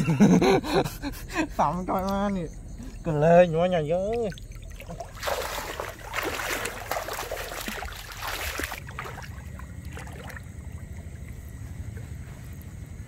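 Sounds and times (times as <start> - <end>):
water splashing: 1.6 - 12.1
water dripping and trickling: 1.6 - 12.7.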